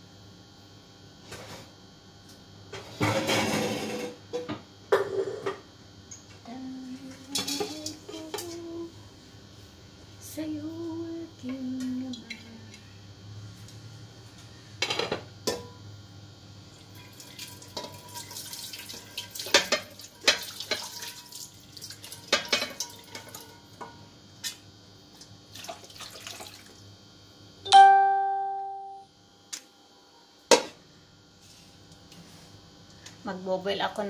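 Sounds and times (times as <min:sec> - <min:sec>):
dishes clattering in sink: 0:17.7 - 0:21.3, 0:22.1 - 0:23.5
metal pot ringing: 0:27.7 - 0:29.0.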